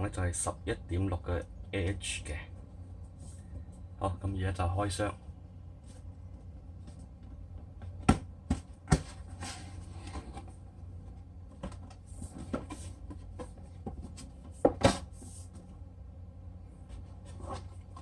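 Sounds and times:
cardboard rustling and scraping: 7.8 - 15.8, 16.7 - 18.0.

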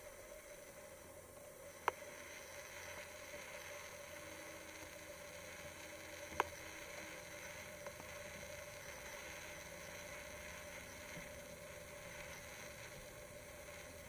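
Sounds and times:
faint steady hiss: 0.0 - 14.0
soft tick: 1.8 - 2.0, 6.3 - 6.6.

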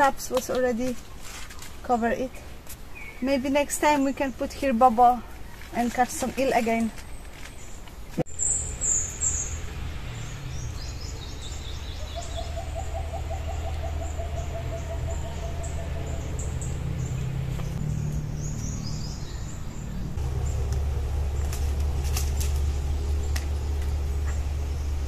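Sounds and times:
birds chirping and trilling: 1.9 - 25.0
steady low rumble: 10.5 - 25.0.

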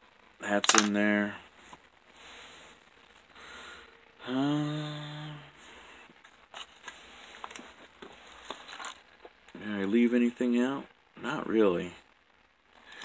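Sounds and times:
fishing tackle clicking and rustling: 0.6 - 1.0
man humming hmm: 4.2 - 6.0.

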